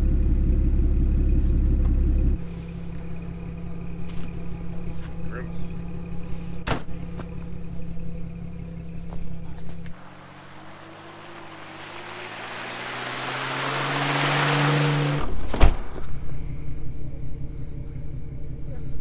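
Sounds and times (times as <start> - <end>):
vehicle engine running: 0.0 - 19.0
thump: 6.6 - 7.3, 15.2 - 16.1
tyres hissing on wet road: 10.0 - 15.2.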